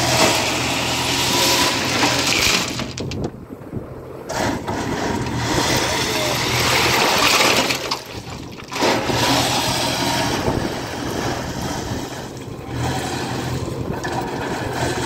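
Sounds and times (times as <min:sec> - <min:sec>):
gravel pouring into truck bed: 0:00.0 - 0:03.2, 0:04.7 - 0:11.5
diesel engine running: 0:00.0 - 0:15.0.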